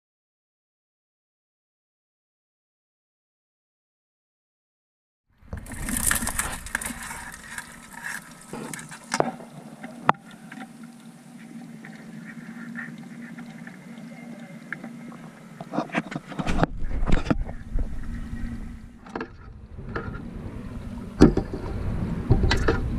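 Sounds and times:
water sloshing and splashing: 5.4s - 22.9s.

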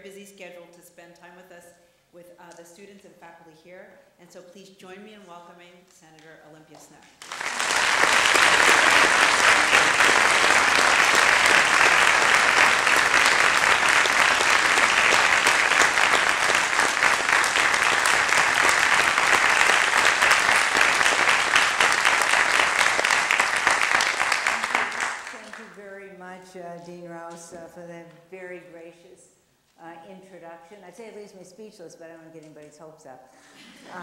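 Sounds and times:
audience applauding: 7.2s - 25.6s.

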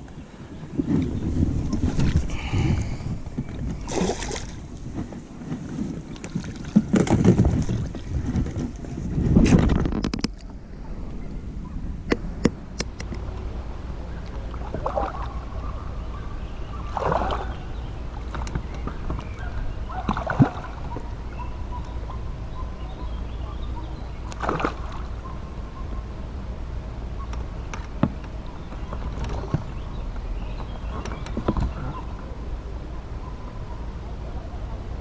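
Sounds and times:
steady low rumble: 0.0s - 5.4s, 6.0s - 35.0s
water splashing at boat: 0.8s - 10.8s, 12.1s - 15.7s, 16.5s - 22.1s, 22.8s - 25.5s.

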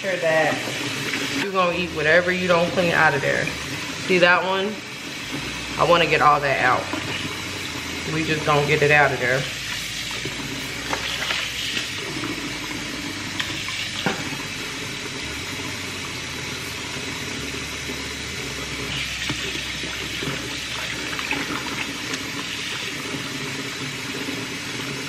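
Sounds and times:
faucet running into metal sink: 0.0s - 25.0s.

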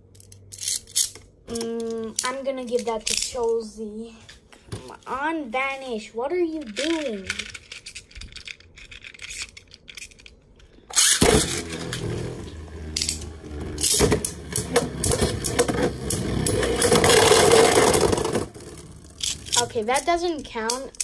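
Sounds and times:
spinning tops launching: 10.9s - 20.1s
spinning tops whirring and rattling: 11.0s - 21.0s.

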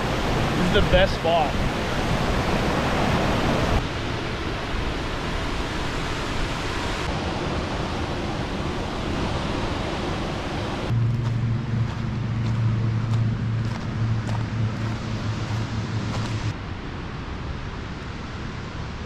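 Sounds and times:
waterfall rushing: 0.0s - 3.9s
low steady hum: 1.6s - 19.0s.

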